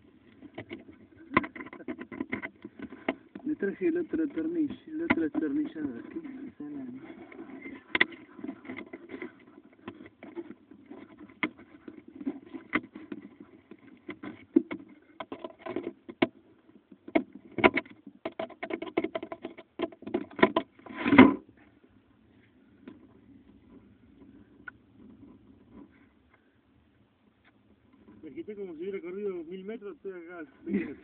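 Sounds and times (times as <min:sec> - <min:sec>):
handling clicks and knocks: 0:00.3 - 0:21.4.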